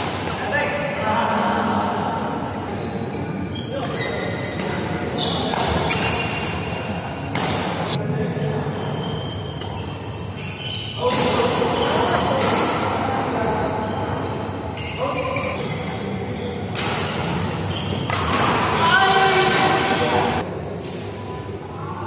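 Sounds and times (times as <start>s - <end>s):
racket hitting shuttlecock: 5.4s - 6.2s, 7.3s - 7.9s, 16.7s - 17.4s, 18.0s - 18.8s
players' voices: 10.8s - 22.0s.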